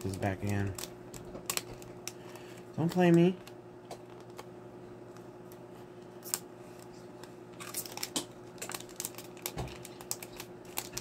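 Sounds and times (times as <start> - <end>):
plastic sheet crinkling: 0.0 - 4.4, 7.6 - 11.0
faint steady hum: 0.0 - 11.0.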